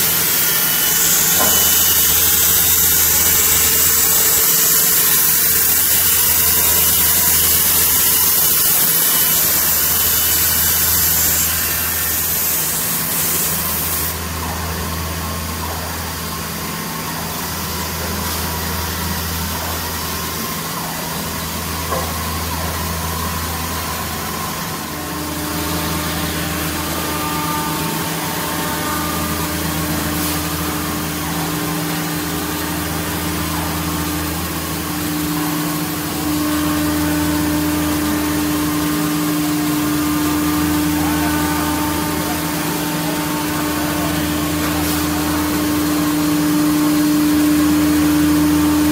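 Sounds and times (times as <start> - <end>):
saw blade cutting wood: 0.0 - 14.2
machine motors humming: 0.0 - 48.9.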